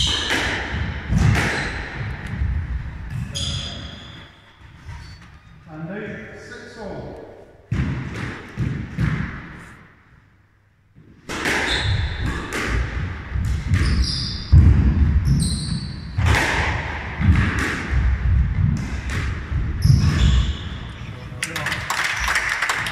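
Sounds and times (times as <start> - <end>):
squash ball thudding: 0.0 - 4.2, 7.7 - 10.0, 11.0 - 20.8
shoes squeaking on court: 0.0 - 5.7, 13.7 - 14.6, 15.2 - 16.2, 19.8 - 21.4.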